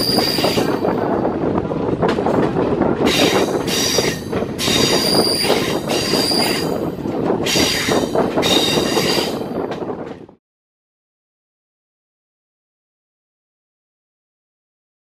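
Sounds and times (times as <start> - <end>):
train wheel flanges squealing: 0.0 - 1.1, 3.0 - 10.2
train wheels rumbling on rails: 0.0 - 10.4.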